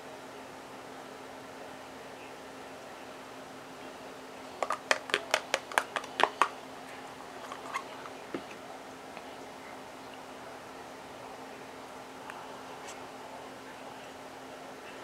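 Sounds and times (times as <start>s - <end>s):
knife tapping plastic cup: 4.6s - 6.6s.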